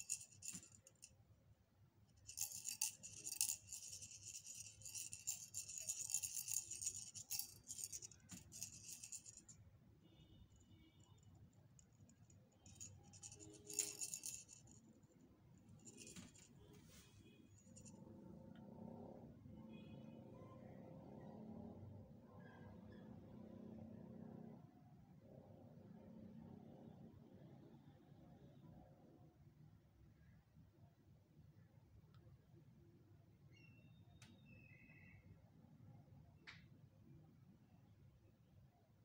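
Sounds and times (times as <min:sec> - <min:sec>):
toy rattling and jingling: 0:00.0 - 0:01.1, 0:02.2 - 0:09.6, 0:12.1 - 0:14.8, 0:15.8 - 0:16.5.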